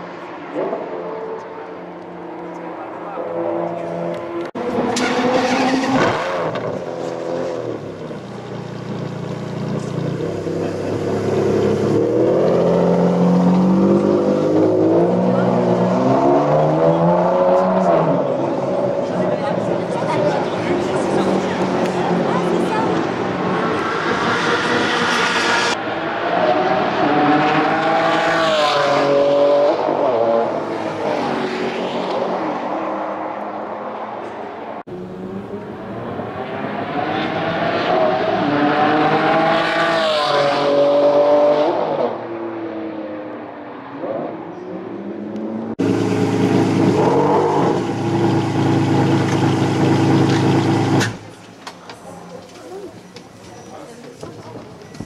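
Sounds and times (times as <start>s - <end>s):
car engine idling: 7.8s - 12.0s, 47.8s - 55.0s
sports car accelerating past: 10.4s - 51.0s.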